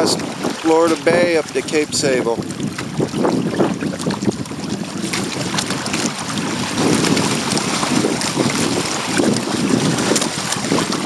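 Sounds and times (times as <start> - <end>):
water splashing against hull: 0.0 - 11.0
wind buffeting microphone: 0.0 - 11.0.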